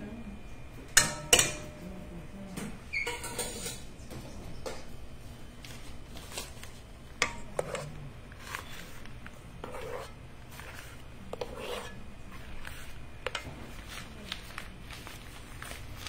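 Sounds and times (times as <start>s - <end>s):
spatula scraping metal bowl: 7.2s - 13.8s.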